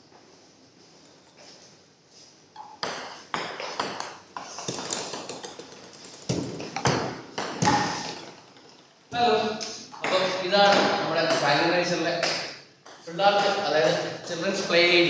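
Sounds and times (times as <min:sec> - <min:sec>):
table tennis ball clicking: 0:02.6 - 0:10.3.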